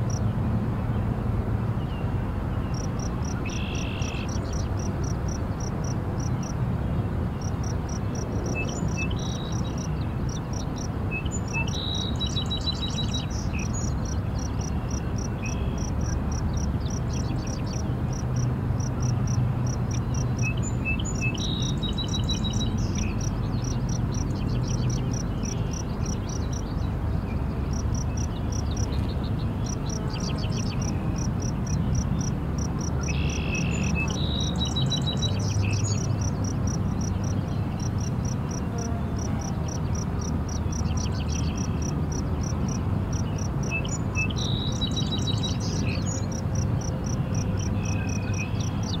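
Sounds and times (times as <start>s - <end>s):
bird singing with trill: 2.6s - 4.7s, 8.4s - 17.9s, 20.0s - 38.7s, 43.2s - 46.4s, 47.4s - 49.0s
insect chirping: 2.8s - 6.5s, 7.4s - 26.7s, 27.7s - 29.0s, 29.6s - 38.6s, 46.8s - 48.7s.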